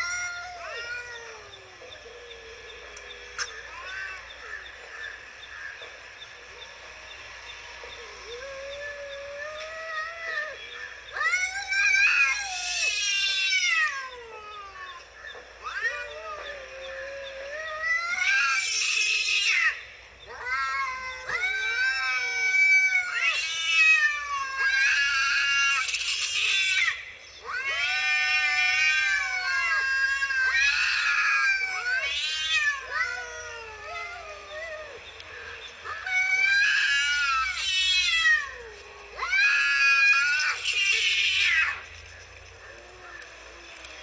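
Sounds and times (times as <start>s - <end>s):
cats yowling: 0.0s - 6.7s, 7.8s - 42.0s.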